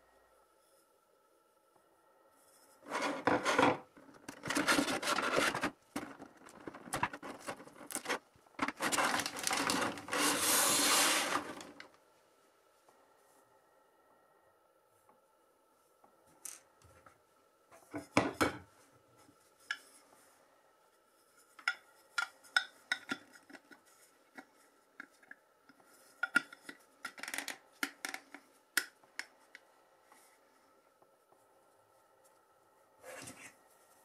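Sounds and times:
plastic parts clicking and scraping: 0:02.9 - 0:11.9, 0:21.6 - 0:29.6.

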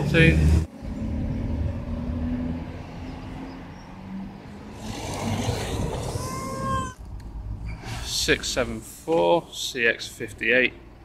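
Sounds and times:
traffic engines rumbling: 0:00.0 - 0:11.0.

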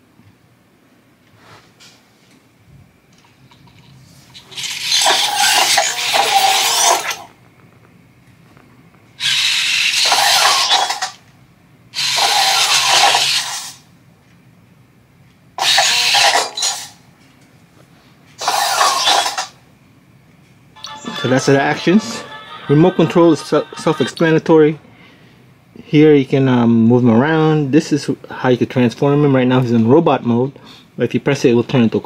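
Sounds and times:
robot servo motors whirring: 0:04.5 - 0:07.2, 0:09.2 - 0:11.1, 0:12.0 - 0:13.8, 0:15.6 - 0:16.9.

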